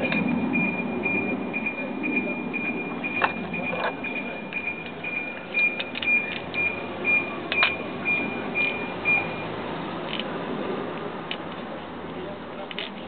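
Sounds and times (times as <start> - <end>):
high repeating tone: 0.0 - 9.6.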